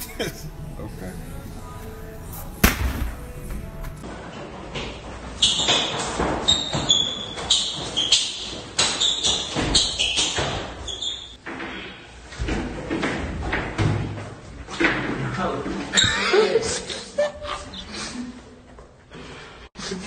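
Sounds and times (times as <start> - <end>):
thuds on tiled floor: 2.6 - 4.0.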